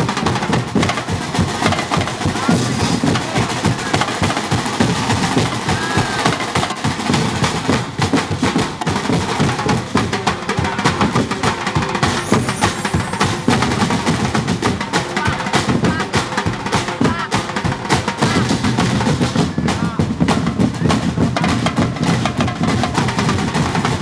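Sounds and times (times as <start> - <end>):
percussion band drumming: 0.0 - 24.0
voices shouting: 1.5 - 6.8, 10.8 - 17.6.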